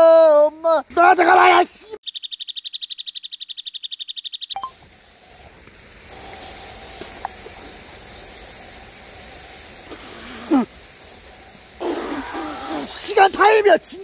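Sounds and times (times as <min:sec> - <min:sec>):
high-pitched censor beep: 0:02.0 - 0:04.8
steady hiss: 0:04.6 - 0:14.0.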